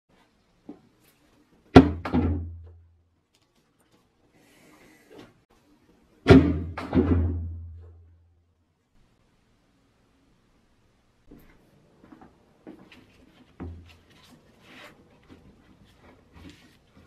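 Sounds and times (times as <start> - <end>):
heavy iron press thudding on wood: 6.3 - 7.8.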